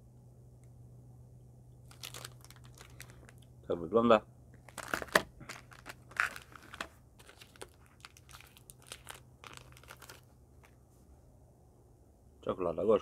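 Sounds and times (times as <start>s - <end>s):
chocolate wrapper crinkling: 1.8s - 3.5s, 4.6s - 10.8s.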